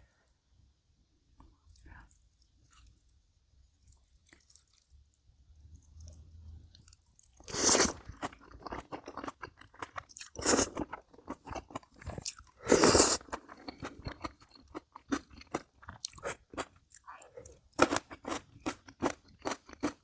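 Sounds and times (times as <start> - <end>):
person chewing and crunching: 3.8 - 20.0
loud eating bursts: 7.4 - 8.4.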